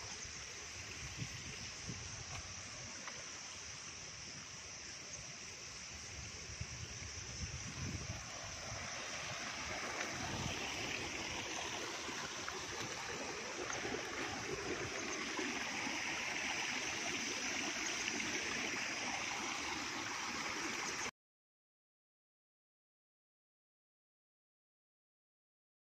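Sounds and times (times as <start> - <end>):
water rushing in channel: 7.4 - 21.1.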